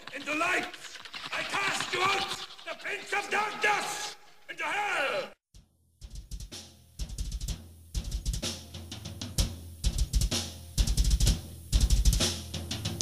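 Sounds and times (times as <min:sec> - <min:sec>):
metal drum kit playing: 0:06.0 - 0:13.0.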